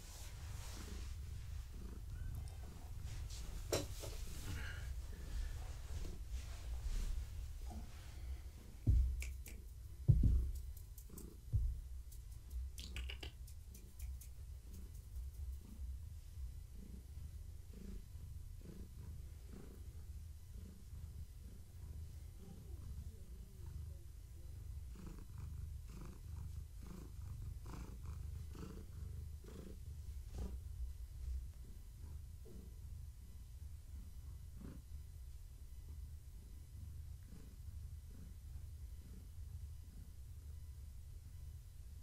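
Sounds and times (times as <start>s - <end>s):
cat purring: 0.0s - 42.0s
dull thumps: 8.8s - 9.2s, 10.0s - 10.7s, 11.5s - 12.0s.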